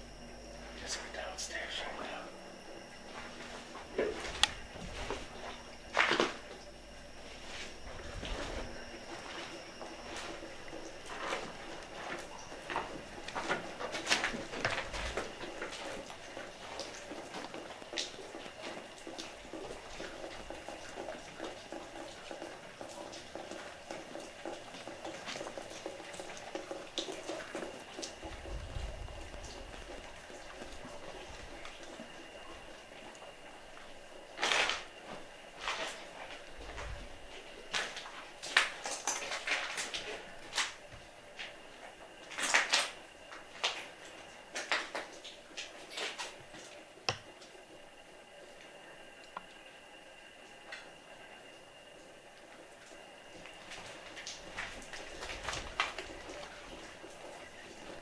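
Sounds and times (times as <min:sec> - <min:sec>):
footsteps crunching over debris: 0:02.7 - 0:20.1, 0:33.7 - 0:46.7, 0:53.4 - 0:57.0.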